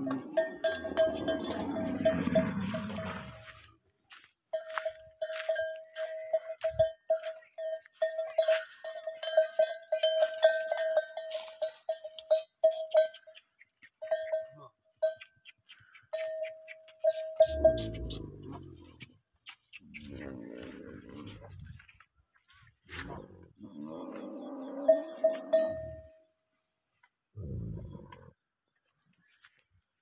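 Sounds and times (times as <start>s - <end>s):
metal bell clanking: 0.0s - 3.4s, 4.5s - 13.3s, 16.2s - 18.7s, 24.9s - 26.2s.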